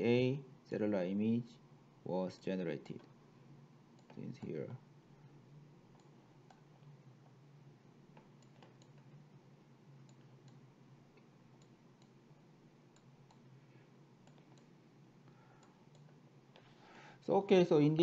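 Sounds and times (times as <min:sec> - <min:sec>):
low steady hum: 0:00.0 - 0:18.0
computer mouse clicks: 0:04.0 - 0:04.6, 0:05.9 - 0:06.8, 0:08.1 - 0:09.2, 0:10.0 - 0:12.2, 0:12.9 - 0:13.5, 0:14.2 - 0:14.7, 0:15.6 - 0:16.7.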